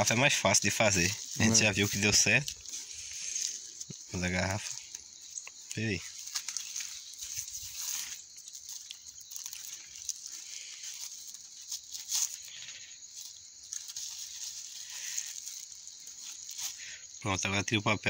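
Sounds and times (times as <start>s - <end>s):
steady high hiss: 0.0s - 18.0s
paper rustling and crinkling: 5.8s - 16.8s.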